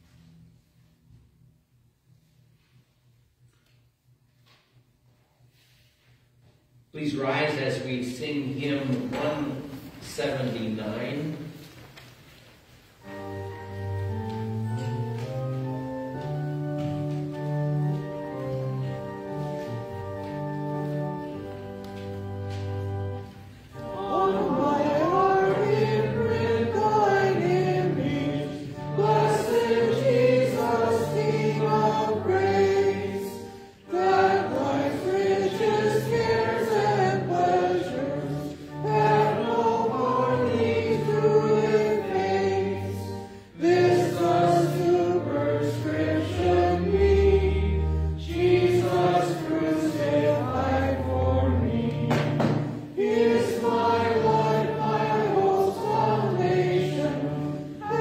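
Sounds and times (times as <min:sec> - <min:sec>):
organ chords: 0:12.9 - 0:58.0
congregation singing a hymn: 0:13.0 - 0:58.0.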